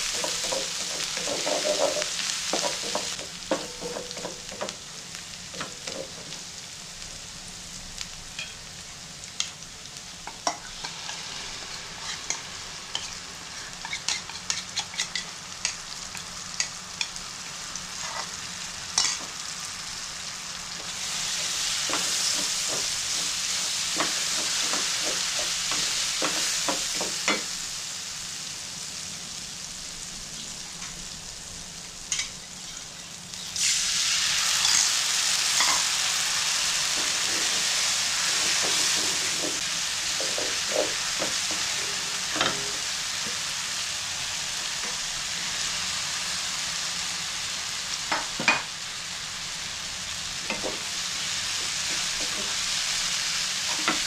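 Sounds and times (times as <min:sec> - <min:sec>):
onion sizzling in oil: 0:00.0 - 0:54.0
wooden spatula scraping a pan: 0:00.1 - 0:03.2, 0:36.9 - 0:42.8.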